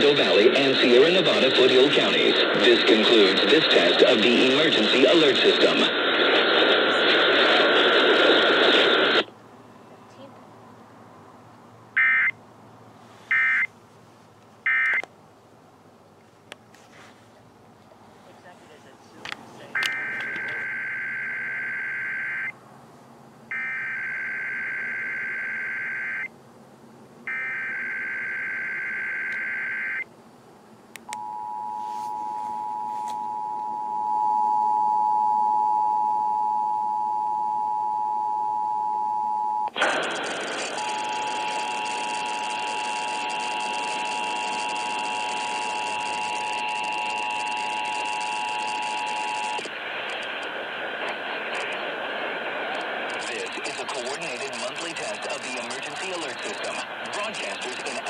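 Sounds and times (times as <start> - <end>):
loud radio hiss: 0.0 - 9.3, 18.1 - 20.8, 39.8 - 58.0.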